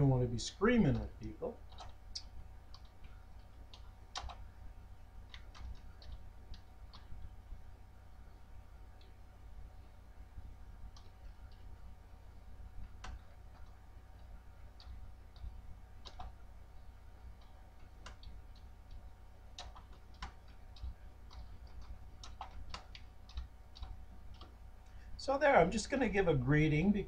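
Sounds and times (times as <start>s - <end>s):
low steady hum: 0.0s - 27.0s
computer keyboard keystrokes: 0.8s - 4.4s, 5.2s - 7.2s, 12.8s - 16.4s, 17.3s - 24.6s.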